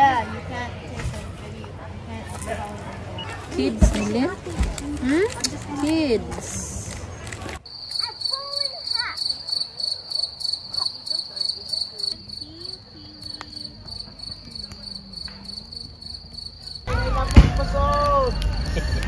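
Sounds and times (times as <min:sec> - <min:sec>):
crickets chirping: 0:07.6 - 0:16.9.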